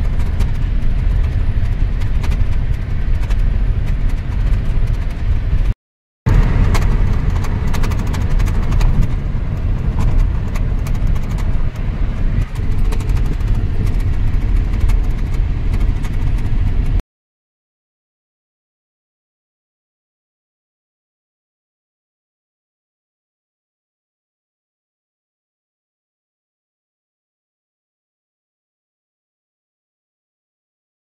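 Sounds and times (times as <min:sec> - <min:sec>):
small clicks and rattles: 0:00.0 - 0:05.7, 0:06.3 - 0:17.0
car cabin road rumble: 0:00.0 - 0:17.0.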